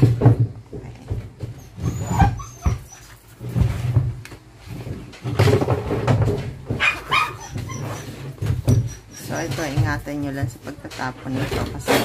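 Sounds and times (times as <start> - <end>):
dog whining and whimpering: 1.4 - 3.7, 6.8 - 9.8.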